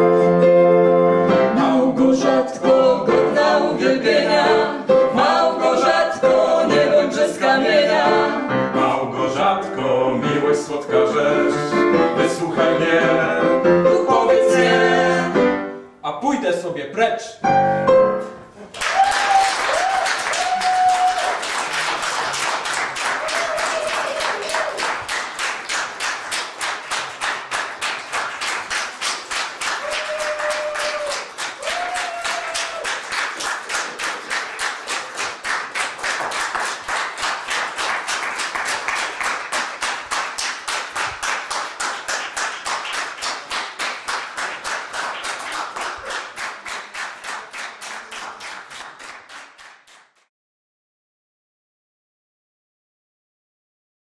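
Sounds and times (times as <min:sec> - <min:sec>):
audience applause: 0:18.7 - 0:50.2
rhythmic clapping in unison: 0:18.8 - 0:50.3.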